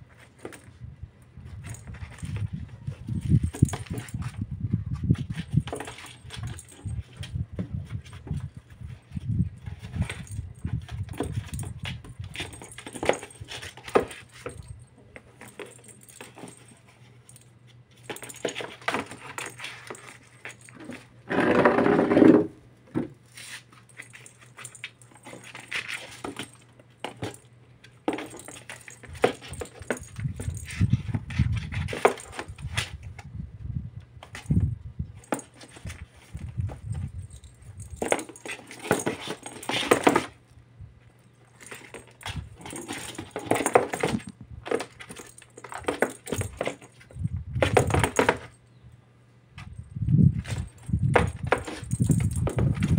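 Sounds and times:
ball and paws scuffing cardboard: 23.0s - 27.4s, 37.8s - 40.4s, 41.6s - 48.5s, 50.3s - 52.9s
jingle ball bell rattling: 28.1s - 31.2s, 36.8s - 40.2s, 50.4s - 52.9s.

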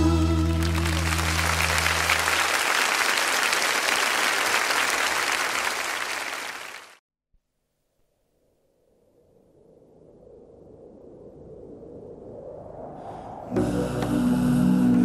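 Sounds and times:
studio audience applauding: 0.4s - 7.0s.

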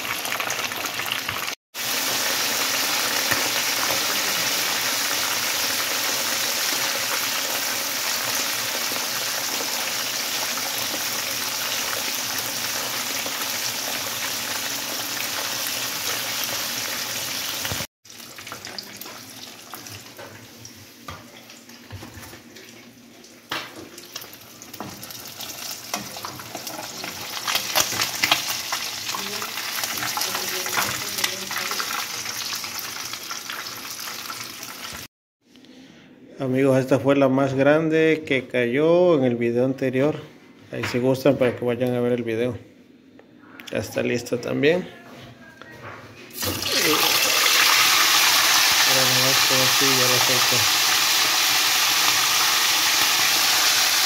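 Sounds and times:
fish sizzling in hot oil: 0.0s - 20.7s, 24.0s - 35.1s, 46.4s - 54.0s.

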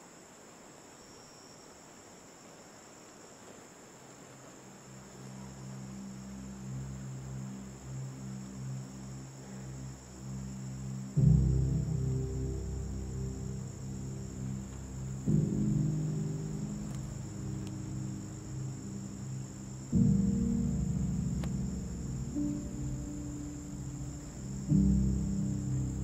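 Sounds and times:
crickets chirring: 0.0s - 26.0s
ominous music drone: 5.6s - 26.0s.

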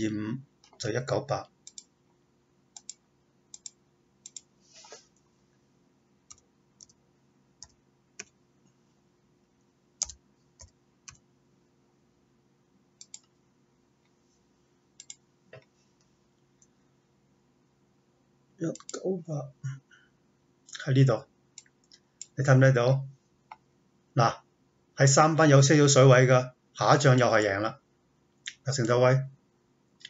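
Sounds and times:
faint steady hum: 0.0s - 30.0s
computer mouse clicking: 1.6s - 1.9s, 2.8s - 5.0s, 6.3s - 7.0s, 7.6s - 8.4s, 10.0s - 11.2s, 13.0s - 13.4s, 15.0s - 15.7s, 18.7s - 19.0s.

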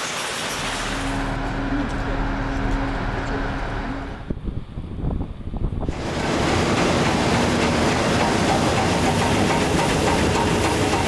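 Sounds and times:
machinery mechanical din: 0.3s - 11.0s
faint underlying hum: 0.6s - 8.5s.

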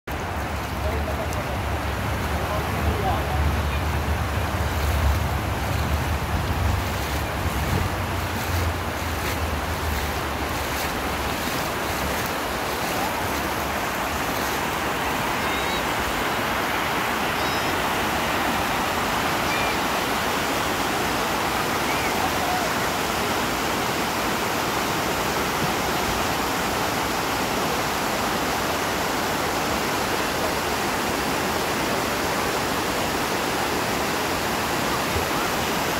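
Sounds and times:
river water rushing over a weir: 0.1s - 35.9s
wind buffeting microphone: 3.5s - 12.8s.

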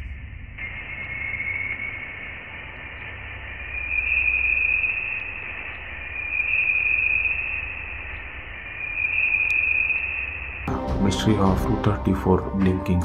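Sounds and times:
low rumble: 0.0s - 8.9s
steady hiss: 0.0s - 9.5s.

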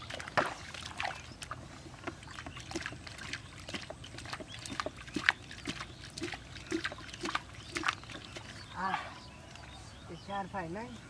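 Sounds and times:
water splashing and sloshing: 0.0s - 9.8s.

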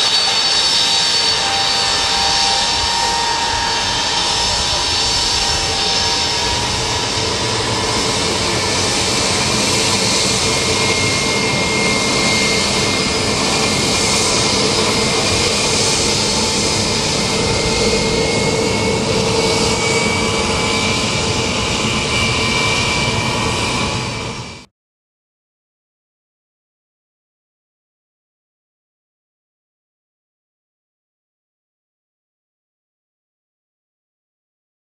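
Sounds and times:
high engine whine: 0.0s - 24.7s
jet engines roaring: 0.0s - 24.7s.

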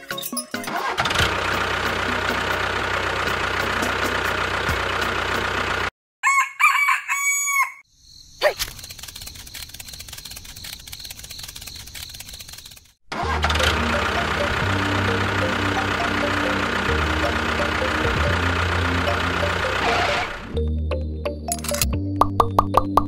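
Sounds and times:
tractor engine running: 0.5s - 5.9s, 8.7s - 20.8s
rooster crowing: 6.2s - 7.8s.

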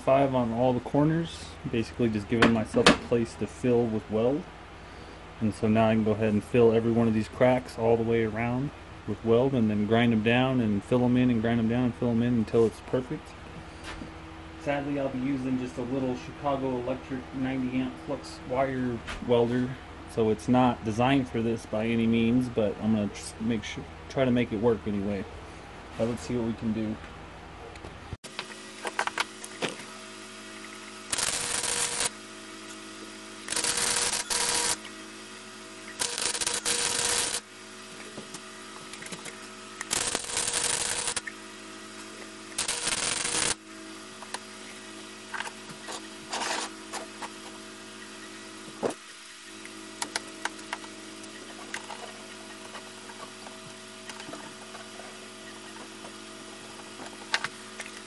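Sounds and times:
steady electrical hum: 0.0s - 58.0s
welding arc buzzing: 28.2s - 58.0s.

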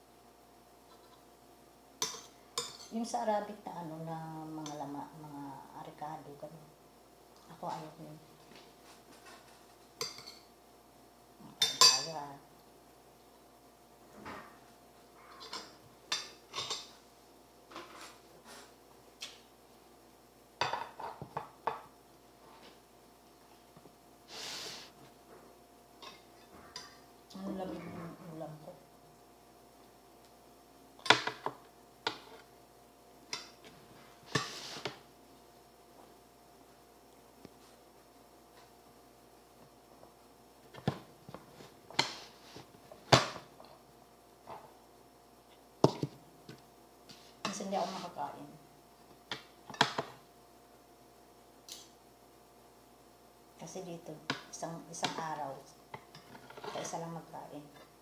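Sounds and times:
spoon and dishes clinking: 11.6s - 12.1s
tableware scraping: 15.2s - 17.0s, 17.7s - 18.7s, 33.4s - 35.0s, 56.2s - 57.0s
tableware knocking and clattering: 20.6s - 21.9s
short breathy hiss: 24.2s - 25.0s.

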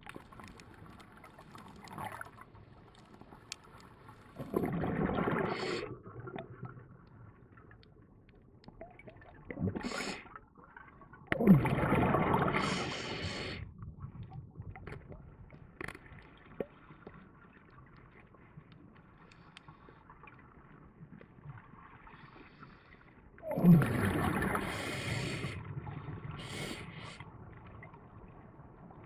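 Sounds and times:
breath bubbles gurgling underwater: 0.0s - 7.8s, 8.7s - 17.8s, 23.4s - 29.0s.

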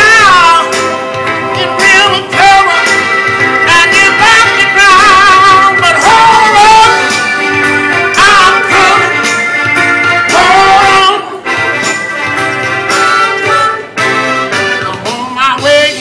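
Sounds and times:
man singing soul: 0.0s - 0.9s, 1.5s - 7.2s, 7.9s - 9.3s, 10.3s - 11.5s, 14.8s - 16.0s
instrumental backing: 0.0s - 16.0s.

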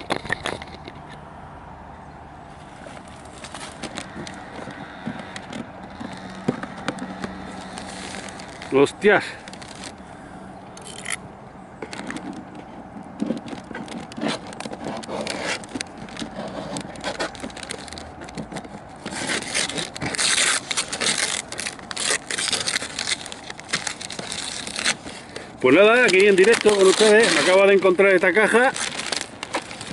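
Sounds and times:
cardboard scraping and crackling: 2.5s - 10.0s, 11.8s - 29.9s
wrapping tearing and crinkling: 2.7s - 10.0s, 13.2s - 29.9s
packing tape ripping: 2.8s - 10.0s, 13.2s - 29.9s.

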